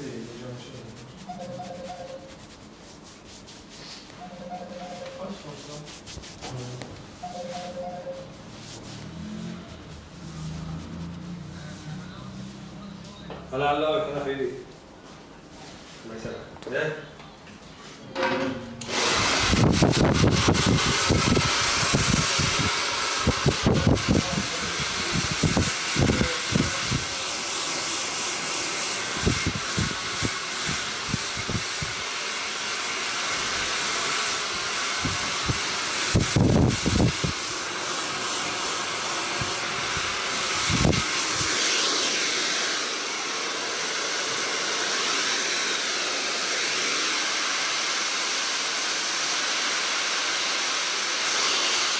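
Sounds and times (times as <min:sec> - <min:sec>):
hair dryer blowing: 0:18.8 - 0:51.9.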